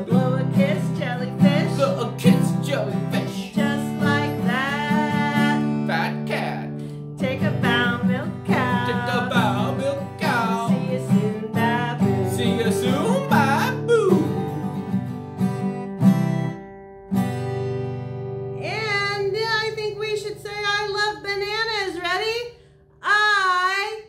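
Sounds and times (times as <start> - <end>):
woman singing: 0.0 - 2.5, 3.1 - 5.8, 7.2 - 13.5, 18.6 - 22.3
acoustic guitar strumming: 0.0 - 22.0.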